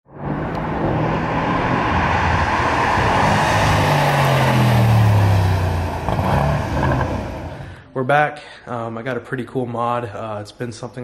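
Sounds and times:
car engine driving by: 0:00.1 - 0:07.8.

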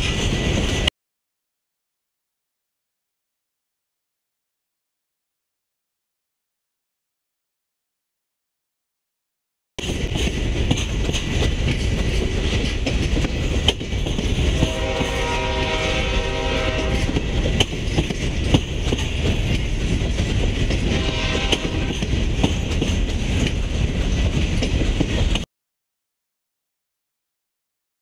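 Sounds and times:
freight train rumbling past: 0:00.0 - 0:00.9, 0:09.8 - 0:25.4
wheel clicks over rail joints: 0:09.8 - 0:14.5
train horn: 0:14.4 - 0:17.4, 0:20.8 - 0:22.2.

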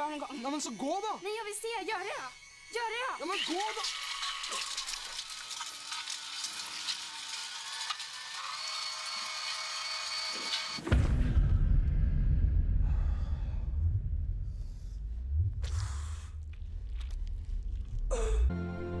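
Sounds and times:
hiss with high whining tones: 0:00.0 - 0:07.0
loud low rumble: 0:10.9 - 0:18.5.

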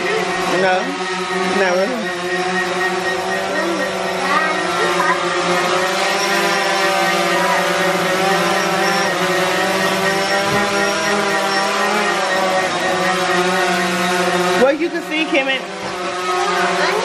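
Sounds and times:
drone buzzing hum: 0:00.0 - 0:17.0
child's voice: 0:03.4 - 0:05.8, 0:07.2 - 0:08.5, 0:15.9 - 0:17.0.

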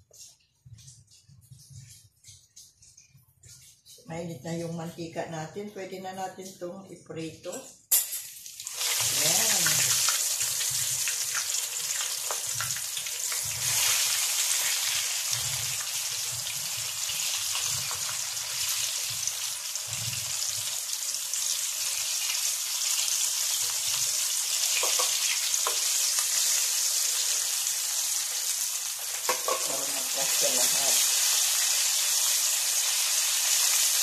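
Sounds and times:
chicken frying in oil: 0:08.2 - 0:34.0.

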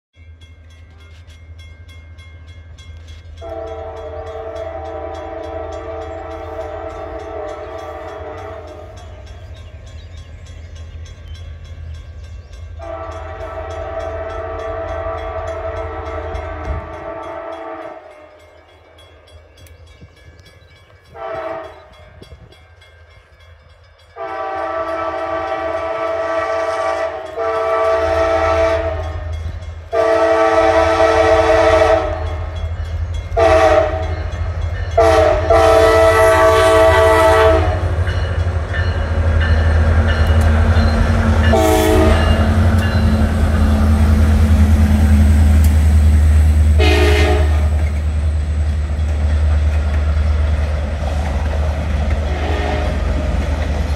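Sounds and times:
passing train rumble: 0:00.1 - 0:53.9
locomotive air horn blasts: 0:03.4 - 0:09.0, 0:12.8 - 0:18.4, 0:21.1 - 0:22.0, 0:24.2 - 0:32.6, 0:33.4 - 0:34.4, 0:35.0 - 0:38.0, 0:41.4 - 0:43.9, 0:46.7 - 0:47.9, 0:52.3 - 0:53.1.

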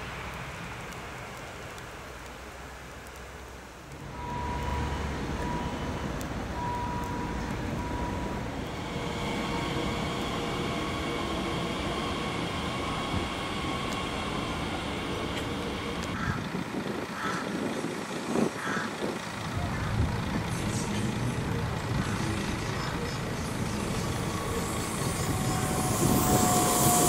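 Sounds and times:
train rumble: 0:00.0 - 0:27.0
electric whine tones: 0:03.9 - 0:16.4, 0:23.0 - 0:27.0.

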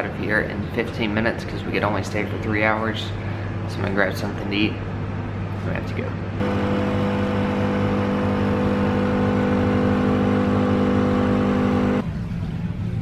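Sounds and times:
low background hum: 0:00.0 - 0:06.6
espresso machine humming: 0:06.4 - 0:12.0.

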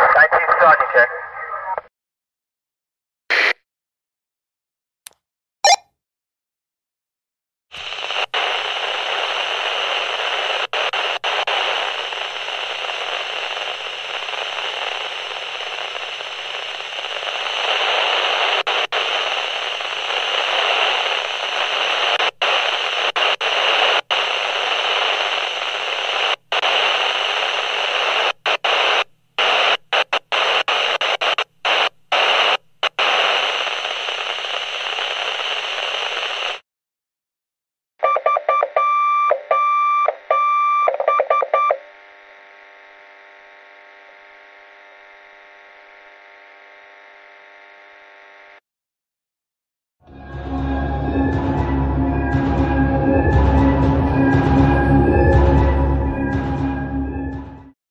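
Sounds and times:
two-way radio static hiss: 0:00.0 - 0:01.9, 0:03.3 - 0:03.6, 0:07.7 - 0:36.6, 0:41.8 - 0:48.6.

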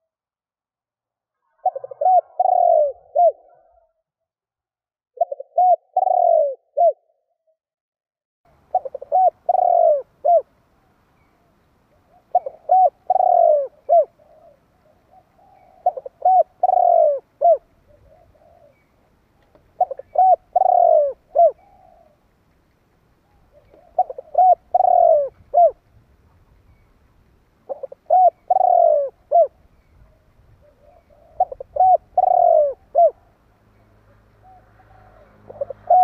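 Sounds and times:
dove cooing: 0:01.5 - 0:03.9, 0:05.2 - 0:07.1, 0:08.6 - 0:10.5, 0:12.0 - 0:22.2, 0:23.2 - 0:25.8, 0:27.6 - 0:33.4, 0:34.4 - 0:36.0.

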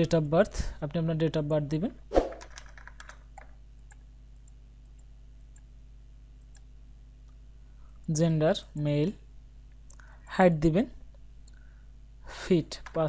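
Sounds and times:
steady low hum: 0:00.0 - 0:13.0
computer mouse clicks: 0:02.3 - 0:05.7, 0:06.4 - 0:06.7.

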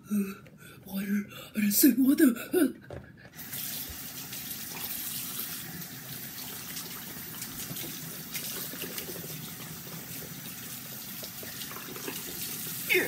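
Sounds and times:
faucet water splashing into sink: 0:03.4 - 0:13.0.

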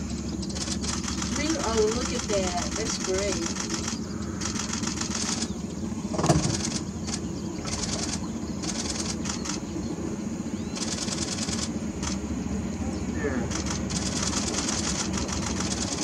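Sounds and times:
rapid high-pitched pulsing: 0:00.0 - 0:09.7, 0:10.7 - 0:12.3, 0:13.2 - 0:16.0
boat motor idling: 0:00.0 - 0:16.0.

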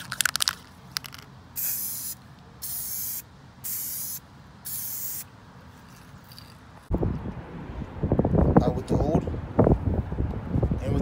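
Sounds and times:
aerosol spray can hissing: 0:01.6 - 0:05.3.

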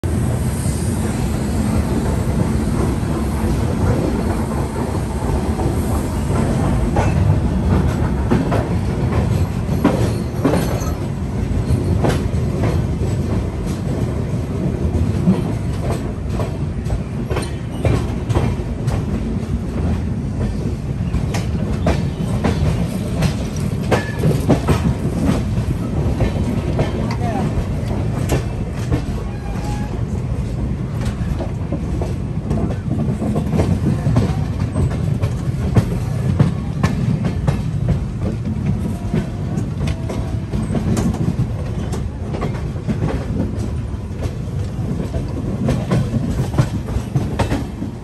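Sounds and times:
train rumble: 0:00.0 - 0:48.0
wheels clicking over rail joints: 0:14.8 - 0:29.9.

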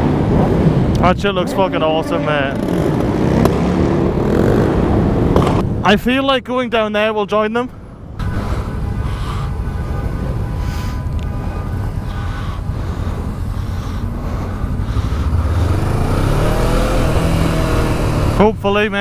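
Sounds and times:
wind and road noise: 0:00.0 - 0:19.0
motorcycle engine accelerating: 0:02.4 - 0:05.7, 0:13.0 - 0:18.6.

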